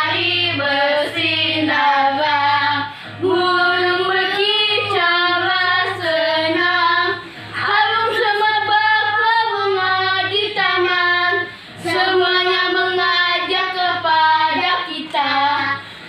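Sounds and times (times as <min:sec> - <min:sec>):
children singing: 0:00.0 - 0:15.8.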